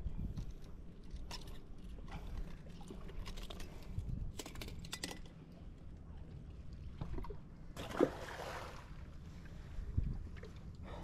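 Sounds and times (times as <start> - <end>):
fishing gear clicking and rattling: 0.3 - 5.5.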